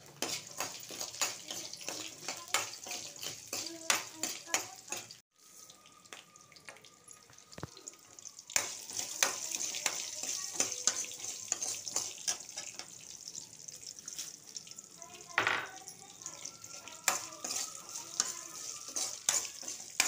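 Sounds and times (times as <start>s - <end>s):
metal spoon scraping pan: 0.0s - 5.2s, 8.6s - 13.0s, 17.0s - 20.0s
vegetables sizzling in oil: 0.0s - 20.0s.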